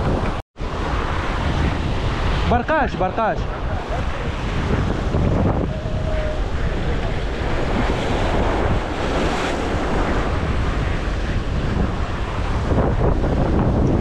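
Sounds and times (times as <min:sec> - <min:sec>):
waves washing: 0:00.0 - 0:14.0
wind buffeting microphone: 0:00.0 - 0:14.0.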